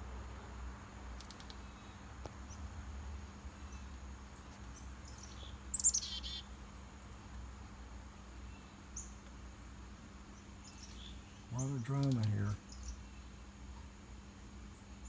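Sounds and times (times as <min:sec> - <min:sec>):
low outdoor rumble: 0:00.0 - 0:15.0
songbird call: 0:01.2 - 0:02.7, 0:03.4 - 0:07.0, 0:08.4 - 0:14.0
faint high bird chips: 0:03.6 - 0:06.6.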